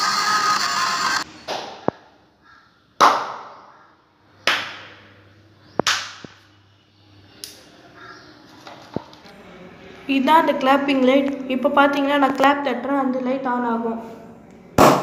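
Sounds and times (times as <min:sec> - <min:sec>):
sharp hand claps with echo: 0:03.0 - 0:03.6, 0:04.5 - 0:05.0, 0:05.8 - 0:06.4.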